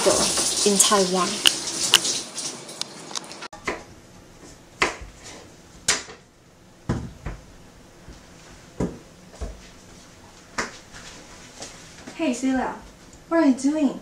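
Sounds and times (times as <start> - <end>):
knife knocking on cutting board: 6.9 - 7.4.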